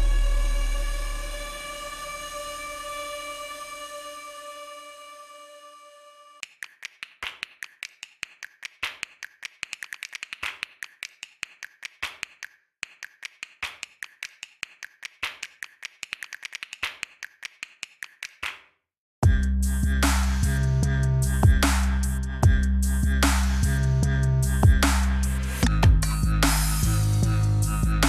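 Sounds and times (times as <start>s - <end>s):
fast sharp clicks: 6.4s - 18.6s.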